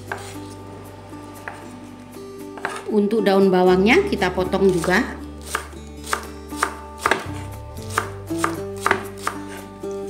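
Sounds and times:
knife chopping spring onions: 0.0 - 0.6, 1.4 - 1.7, 2.6 - 2.9, 4.5 - 10.0
quiet background music: 0.0 - 10.0.

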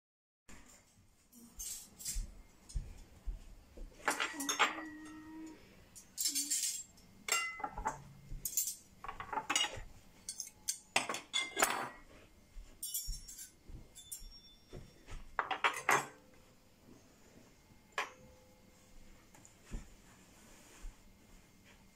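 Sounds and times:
light metallic clinks: 5.9 - 11.7, 12.8 - 15.0.

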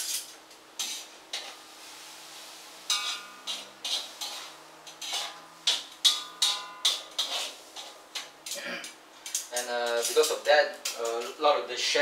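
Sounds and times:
kitchenware clinking: 2.9 - 11.3.

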